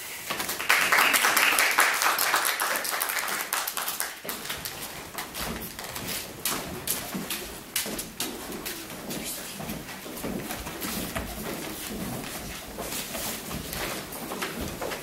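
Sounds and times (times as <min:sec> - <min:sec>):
audience applauding: 0:00.2 - 0:04.6.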